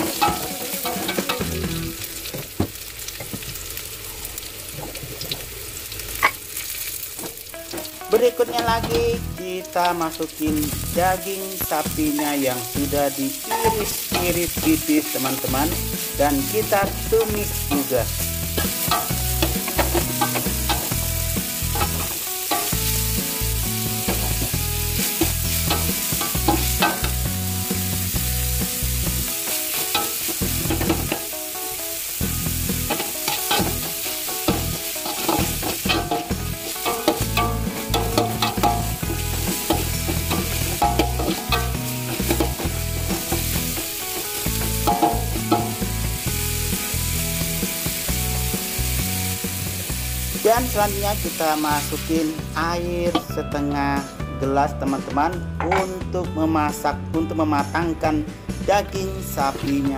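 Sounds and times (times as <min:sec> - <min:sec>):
metal spatula scraping wok: 0:00.0 - 0:01.9, 0:12.2 - 0:27.9, 0:28.5 - 0:31.4, 0:32.2 - 0:46.7
food sizzling in hot oil: 0:00.0 - 0:54.3.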